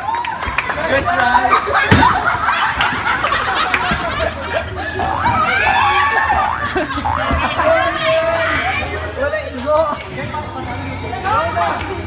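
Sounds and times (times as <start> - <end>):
people laughing and snickering: 1.0 - 8.9.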